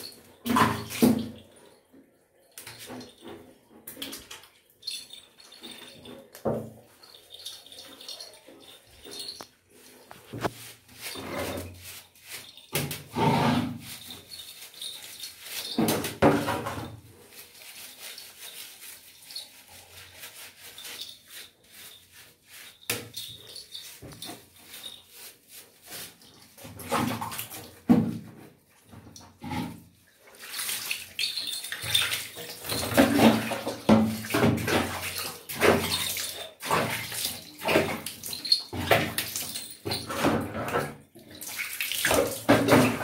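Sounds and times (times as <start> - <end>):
wet rubbing of fur: 6.9 - 15.8, 17.1 - 26.6.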